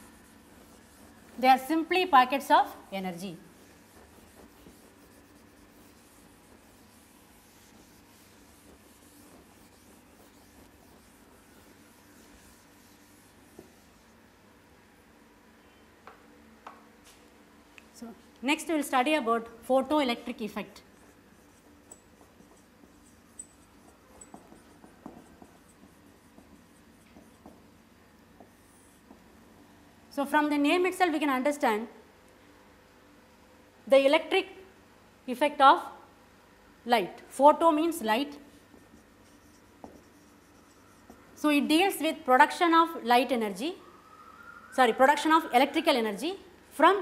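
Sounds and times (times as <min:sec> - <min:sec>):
duster rubbing whiteboard: 0:00.0 - 0:01.9, 0:03.2 - 0:14.2, 0:20.8 - 0:29.3, 0:38.6 - 0:41.4.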